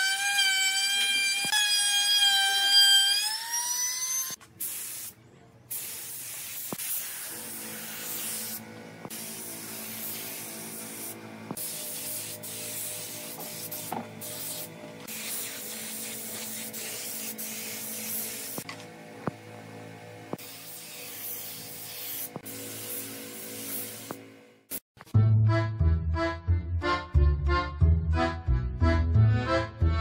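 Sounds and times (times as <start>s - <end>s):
spray gun hissing: 4.6s - 18.7s, 20.3s - 24.8s.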